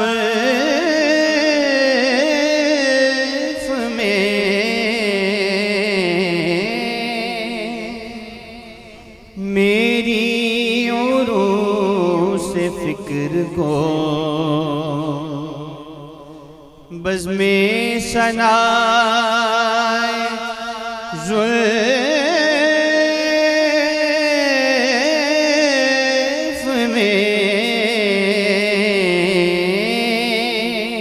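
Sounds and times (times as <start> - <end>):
man singing into microphone: 0.0 - 31.0.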